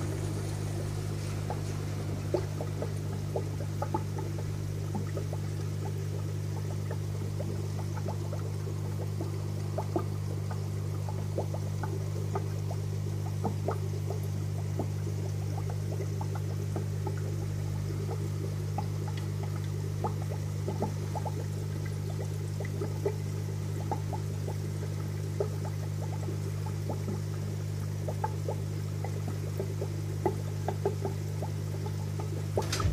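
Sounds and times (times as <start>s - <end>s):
steady low hum: 0.0s - 14.0s, 32.3s - 32.9s
aquarium filter bubbling: 0.0s - 32.9s.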